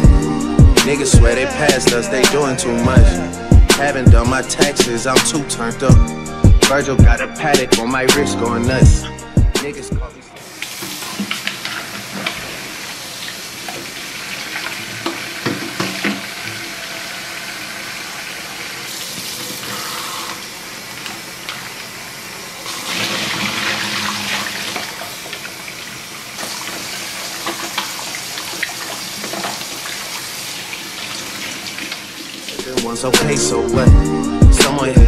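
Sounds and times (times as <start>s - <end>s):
tap running into metal sink: 14.6s - 16.7s.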